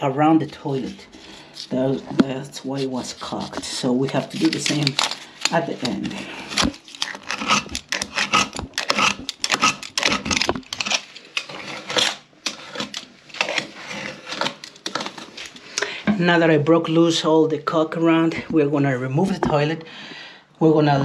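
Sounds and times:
utility knife scraping caulk: 4.2 - 15.6.

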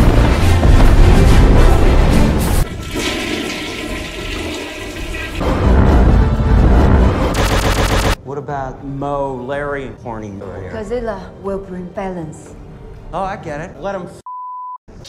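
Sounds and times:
music: 0.0 - 3.0, 5.4 - 14.3
rushing rumbling sound effects: 5.4 - 7.8.

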